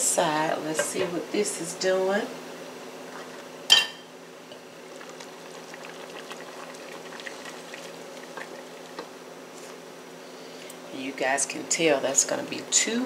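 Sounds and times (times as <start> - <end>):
pot bubbling: 3.0 - 9.8.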